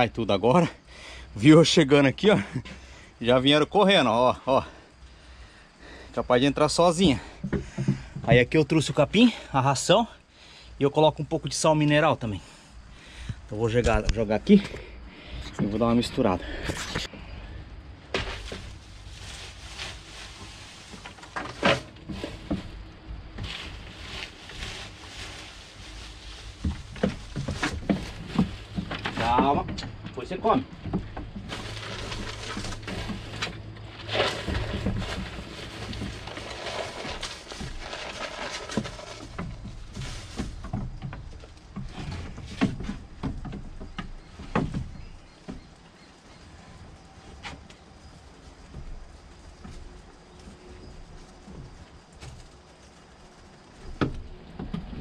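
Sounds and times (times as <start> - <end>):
knocks and thuds at feed trough: 7.3 - 8.6, 26.6 - 45.7
rustling feed being stirred: 18.2 - 29.7, 31.0 - 41.8.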